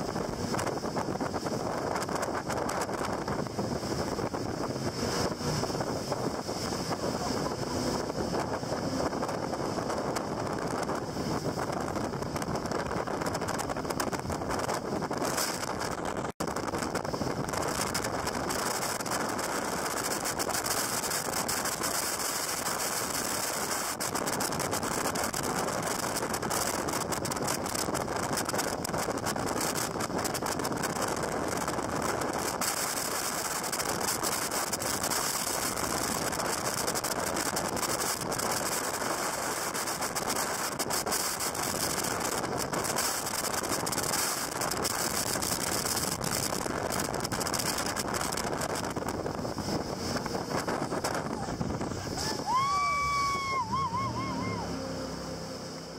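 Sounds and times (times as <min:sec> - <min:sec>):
jet boat engine: 0:00.0 - 0:55.9
rushing water: 0:00.0 - 0:55.9
wind noise: 0:00.0 - 0:55.9.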